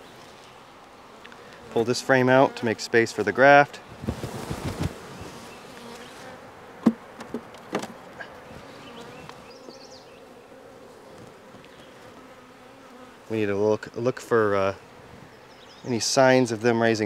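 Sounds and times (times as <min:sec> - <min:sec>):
honeybees buzzing: 0:00.0 - 0:16.5
scraping rustle: 0:03.9 - 0:06.4
sharp knocks on hive: 0:06.8 - 0:08.0.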